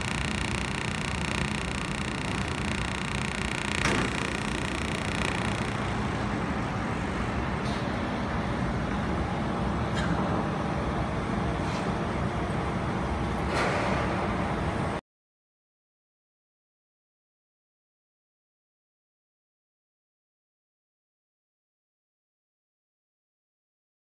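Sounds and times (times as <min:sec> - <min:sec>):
welding crackle: 0:00.0 - 0:06.0
sharp clicks: 0:00.0 - 0:06.2
welding machine hum and hiss: 0:00.0 - 0:15.0.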